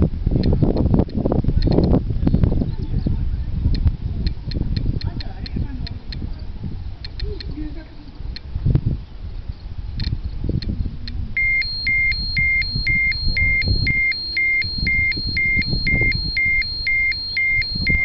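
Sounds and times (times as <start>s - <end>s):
low rumbling microphone noise: 0.0s - 18.0s
dosimeter clicks: 7.0s - 7.5s, 10.0s - 18.0s
short high alarm beeps: 11.4s - 18.0s.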